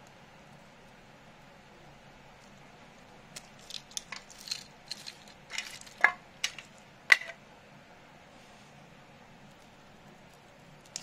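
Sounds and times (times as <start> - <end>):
plastic pieces clicking and clattering: 3.4 - 7.4.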